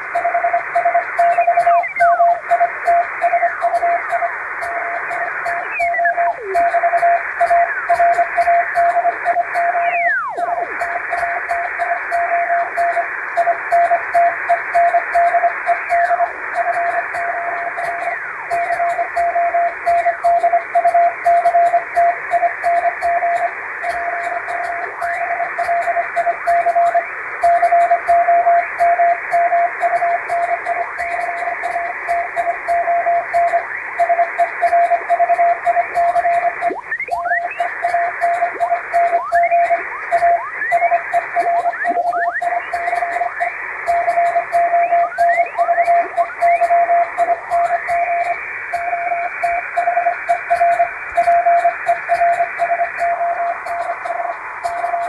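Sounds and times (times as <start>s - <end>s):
morse code tone: 0.0s - 55.0s
radio band static: 0.0s - 55.0s
whistle falling in pitch: 9.8s - 10.4s.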